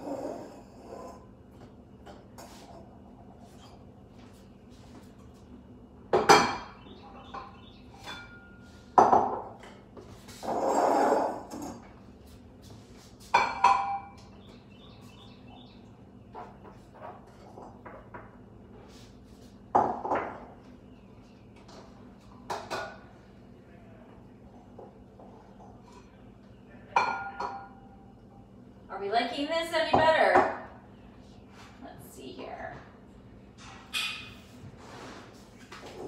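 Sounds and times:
object scraping on countertop: 10.1 - 11.7, 34.6 - 36.0.

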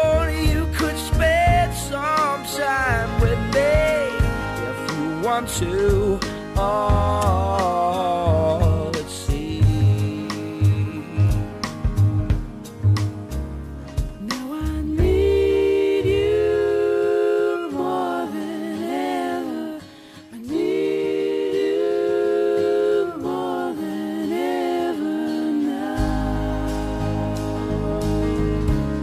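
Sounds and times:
wordless vocal notes: 0.0 - 13.0, 14.0 - 29.0
guitar: 0.0 - 29.0
drum beat: 0.4 - 2.4, 3.0 - 5.3, 5.9 - 8.0, 8.6 - 13.4, 14.0 - 15.5.

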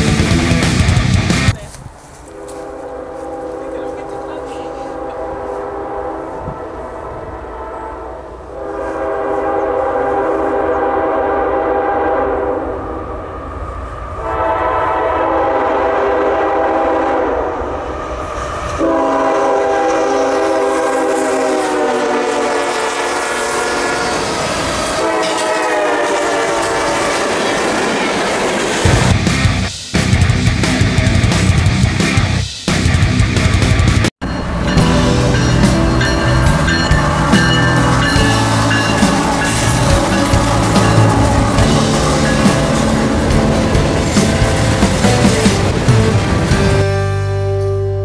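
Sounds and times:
train rumble and wheel clatter: 0.0 - 31.8, 33.8 - 48.0
locomotive air horn blasts: 2.3 - 13.0, 14.2 - 17.6, 18.8 - 24.3, 25.0 - 27.1, 34.8 - 44.8.

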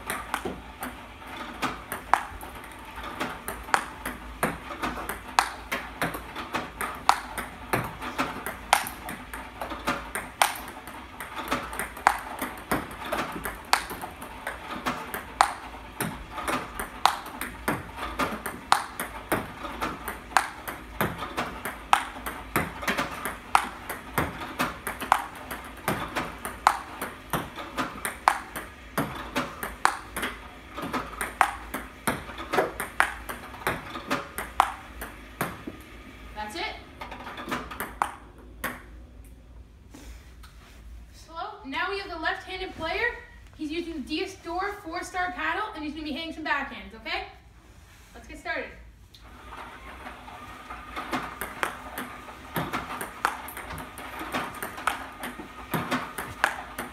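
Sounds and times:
table tennis ball clicks: 0.1 - 35.7, 37.3 - 38.9, 50.9 - 56.9.

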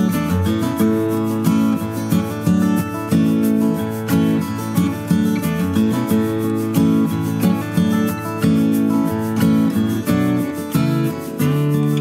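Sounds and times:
acoustic guitar music: 0.0 - 12.0.

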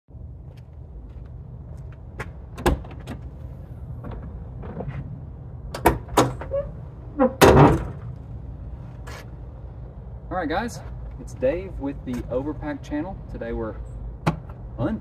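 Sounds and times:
steady low rumble: 0.1 - 15.0
tailgate latch clicks: 5.7 - 6.5
metallic tailgate clunk: 5.7 - 8.1.

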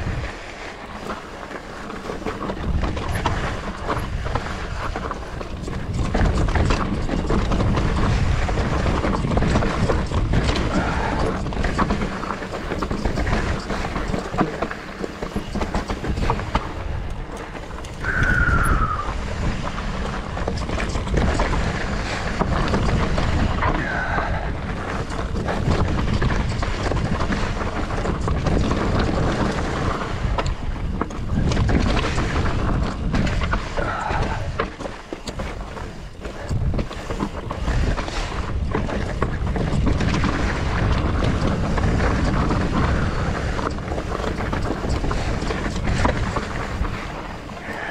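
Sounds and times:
bike rattle and tyre noise: 0.0 - 47.9
wind buffeting microphone: 0.0 - 47.9.

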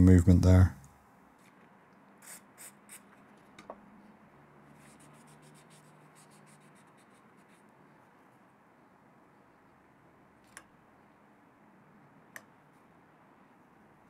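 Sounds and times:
small click: 10.4 - 10.7, 12.3 - 12.5.

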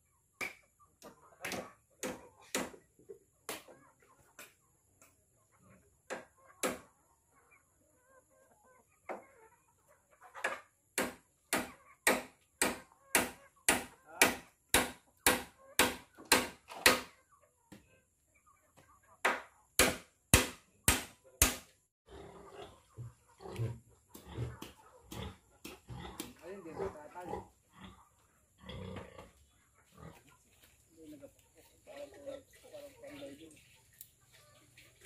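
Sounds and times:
hand tool striking wood: 11.0 - 17.1, 19.2 - 21.7.

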